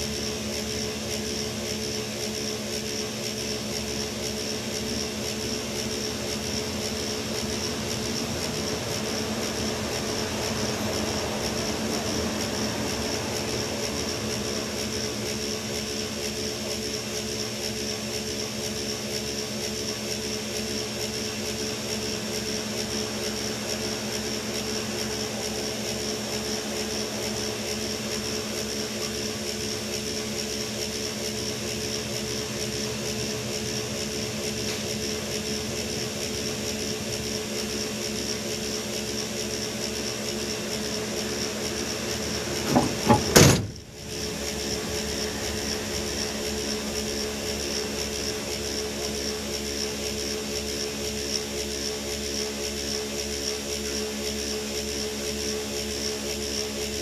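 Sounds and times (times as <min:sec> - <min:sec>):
steady high whine: 0:00.0 - 0:57.0
diesel engine idling: 0:05.5 - 0:15.9, 0:39.7 - 0:48.7.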